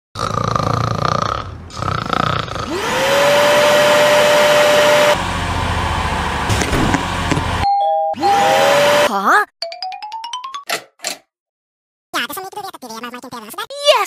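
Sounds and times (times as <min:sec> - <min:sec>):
person snoring: 0:00.2 - 0:02.9
vacuum cleaner motor whine: 0:02.7 - 0:07.6, 0:08.2 - 0:09.1.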